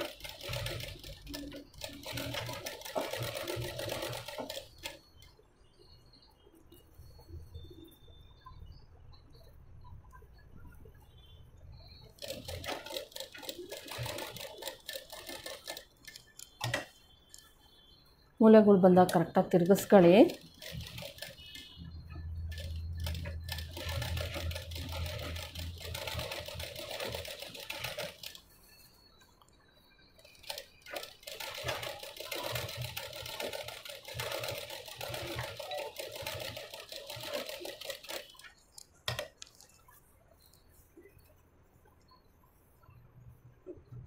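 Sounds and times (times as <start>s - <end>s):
sewing machine stitching: 0.0s - 5.2s, 12.2s - 16.9s, 19.1s - 28.4s, 30.2s - 38.5s.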